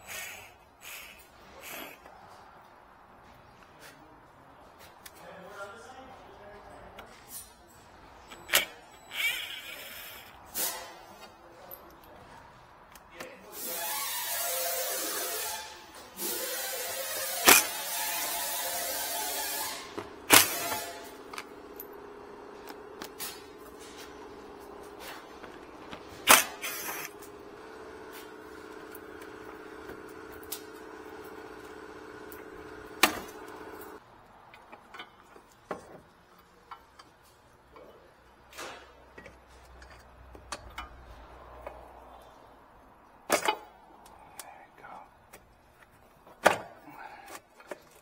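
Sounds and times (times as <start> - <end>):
steady mechanical hum: 13.4 - 48.0.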